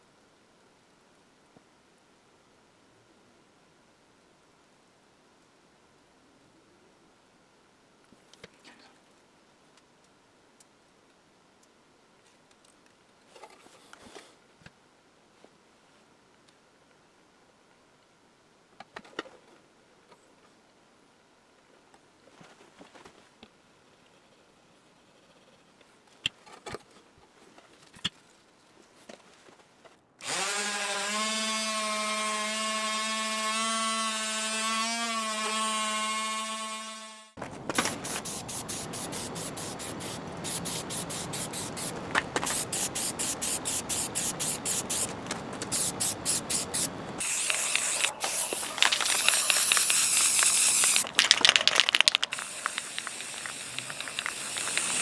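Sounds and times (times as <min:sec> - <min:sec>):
aerosol spray can hissing: 0:37.8 - 0:55.0.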